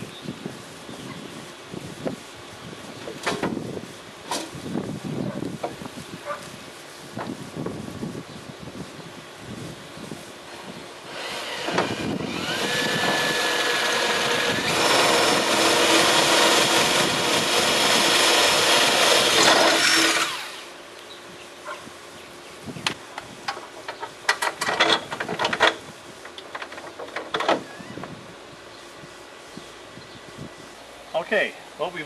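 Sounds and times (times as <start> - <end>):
cordless drill boring: 11.1 - 20.7.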